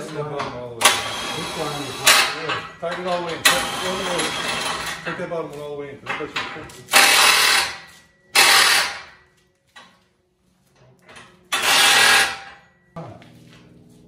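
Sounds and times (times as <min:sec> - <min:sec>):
impact wrench running: 0:00.8 - 0:05.0, 0:06.9 - 0:09.2, 0:11.5 - 0:12.6.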